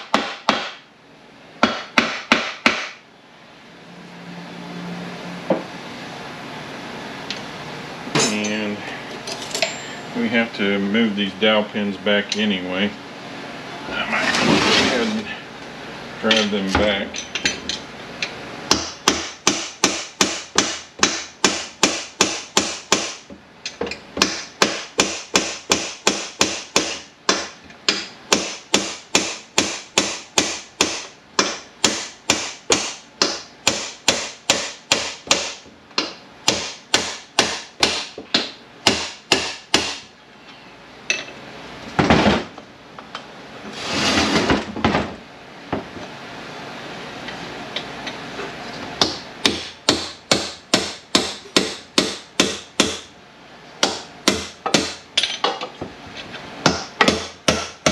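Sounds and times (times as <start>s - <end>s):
rough scraping noises: 13.8s - 15.4s, 43.7s - 44.6s.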